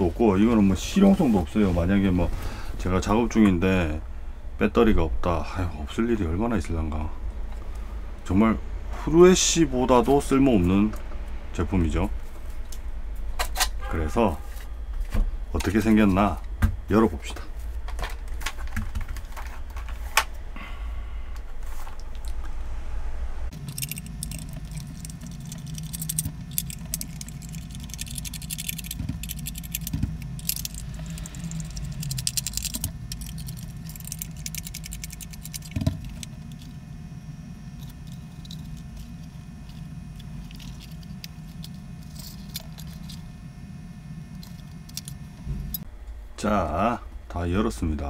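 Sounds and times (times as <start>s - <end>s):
plastic rattles: 23.5s - 36.7s
screwdriver clicks and ticks: 23.6s - 36.7s.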